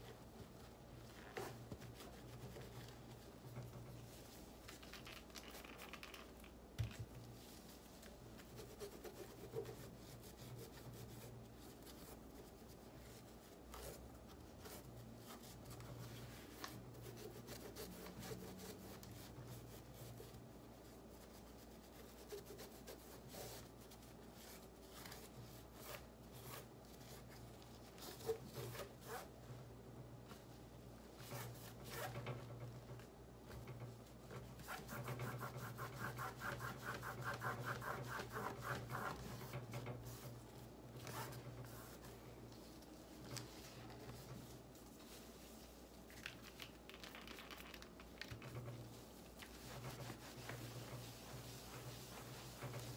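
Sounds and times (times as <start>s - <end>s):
cloth rubbing on amplifier: 34.1s - 46.1s, 47.6s - 52.9s.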